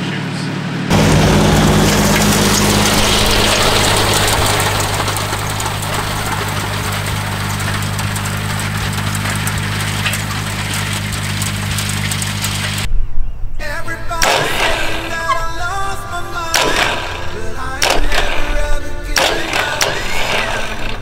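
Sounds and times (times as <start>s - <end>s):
tractor engine running: 0.7s - 12.9s, 14.0s - 21.0s.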